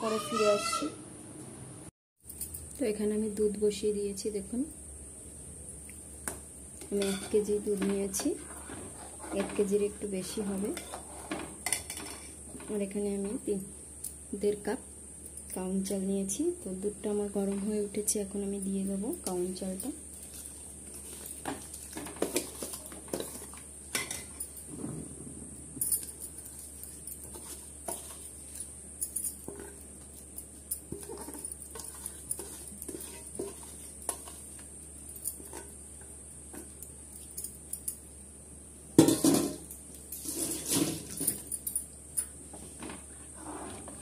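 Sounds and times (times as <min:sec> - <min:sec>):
metal spoon scraping steel bowl: 0:10.5 - 0:12.4, 0:26.6 - 0:28.7, 0:30.8 - 0:34.6
spoon stirring and knocking pot: 0:20.3 - 0:24.6, 0:26.0 - 0:34.7, 0:35.3 - 0:36.8.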